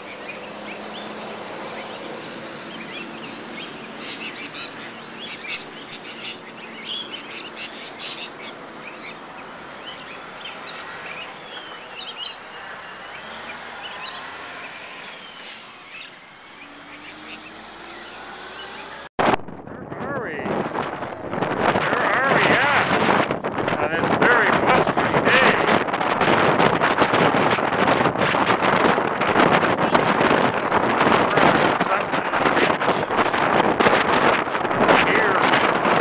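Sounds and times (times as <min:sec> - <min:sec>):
parrots screeching: 0:00.1 - 0:19.0.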